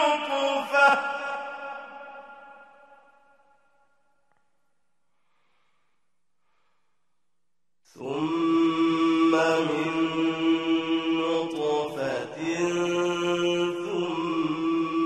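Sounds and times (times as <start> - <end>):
man chanting recitation: 0.0 - 1.6, 8.0 - 15.0.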